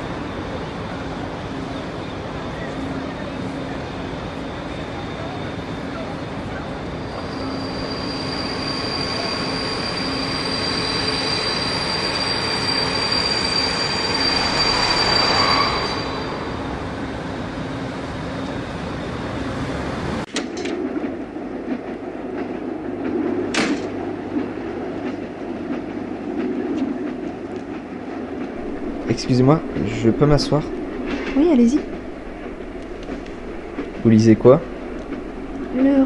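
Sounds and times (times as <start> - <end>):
train wheels squealing on rails: 0.0 - 20.0, 28.6 - 36.0
train rumble: 0.0 - 36.0.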